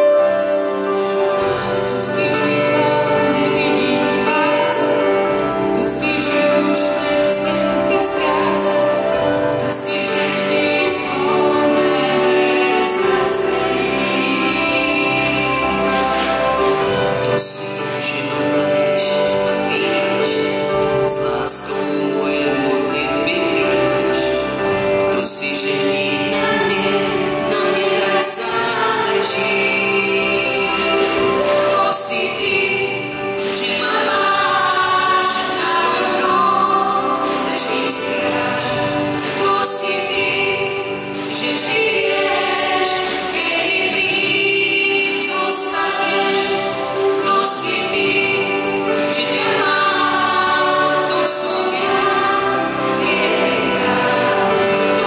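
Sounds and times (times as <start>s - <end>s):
choir singing: 0.0s - 55.0s
man singing: 0.0s - 55.0s
woman singing: 0.8s - 55.0s.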